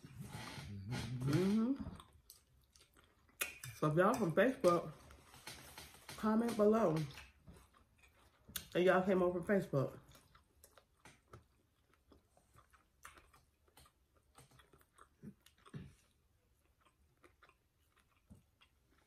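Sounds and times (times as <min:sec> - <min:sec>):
faint chewing of food: 0:00.1 - 0:09.0, 0:09.8 - 0:19.0
small mouth clicks and smacks: 0:02.0 - 0:03.8, 0:10.1 - 0:19.0.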